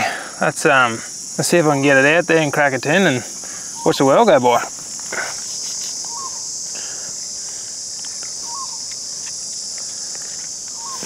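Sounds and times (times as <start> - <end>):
insects chorus: 0.0 - 11.0
bird chirp: 3.4 - 4.5, 5.3 - 7.0, 8.0 - 11.0.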